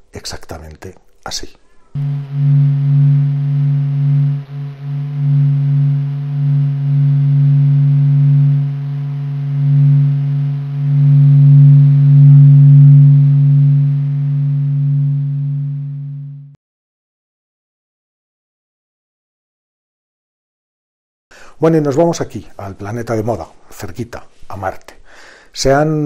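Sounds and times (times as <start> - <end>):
low steady drone: 2.0 - 16.6.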